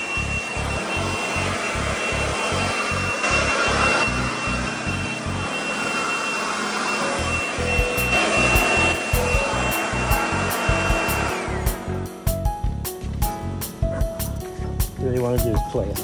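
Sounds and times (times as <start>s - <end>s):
electric leaf blower running: 0.0s - 12.2s.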